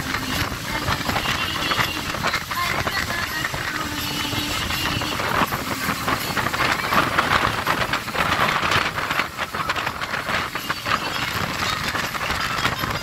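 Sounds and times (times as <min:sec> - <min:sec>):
hull slapping waves: 0:00.0 - 0:13.0
motorboat engine and spray rushing: 0:00.0 - 0:13.0.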